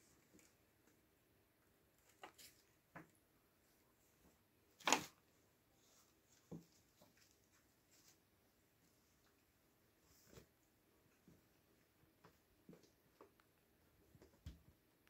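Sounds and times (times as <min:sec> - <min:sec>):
faint rustles and scuffs: 0:05.7 - 0:13.4.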